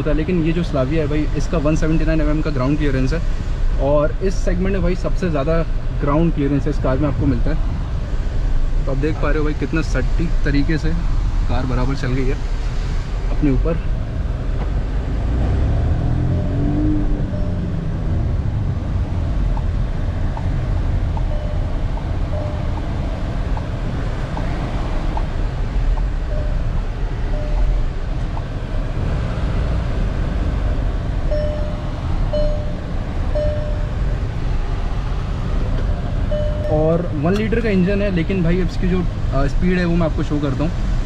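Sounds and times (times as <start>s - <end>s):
car engine and road rumble: 0.0s - 41.0s
short beeps: 17.3s - 17.8s, 21.2s - 22.9s, 26.3s - 27.8s, 31.3s - 34.0s, 36.3s - 36.8s.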